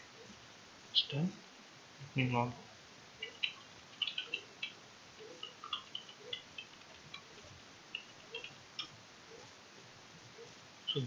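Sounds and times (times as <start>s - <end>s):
keyboard typing clicks: 3.2s - 9.5s.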